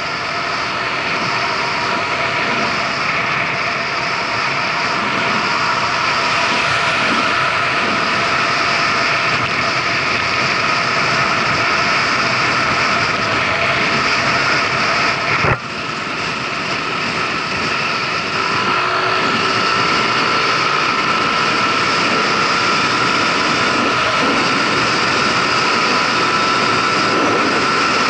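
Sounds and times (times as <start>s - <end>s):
wind rush on camera: 0.0s - 28.0s
scooter engine accelerating: 17.1s - 28.0s.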